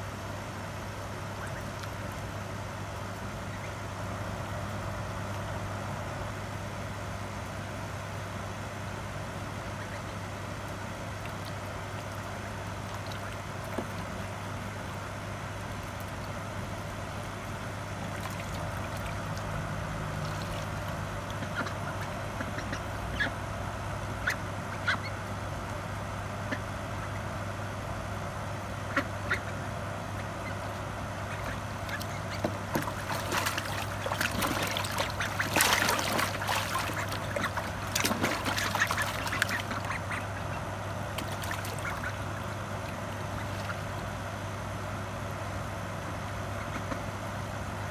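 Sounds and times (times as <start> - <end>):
low hum: 0.0 - 47.9
ducks splashing in water: 9.6 - 23.4, 30.2 - 44.3.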